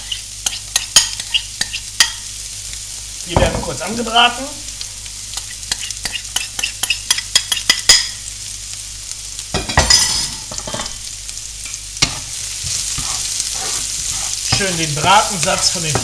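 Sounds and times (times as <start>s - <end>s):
spatula stirring in pan: 0.0s - 2.3s, 5.3s - 8.0s, 12.0s - 16.0s
onion and garlic frying in pan: 0.0s - 16.0s.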